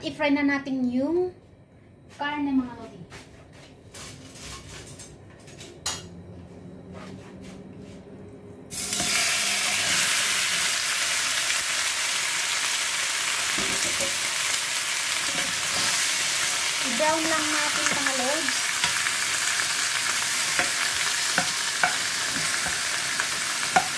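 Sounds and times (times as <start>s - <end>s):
meat sizzling in hot oil: 8.7s - 23.9s.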